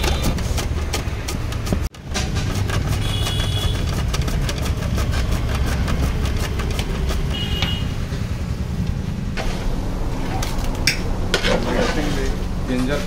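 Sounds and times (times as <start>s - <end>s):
vegetables scraping on grater: 0.0s - 8.0s
low engine-like rumble: 1.2s - 13.0s.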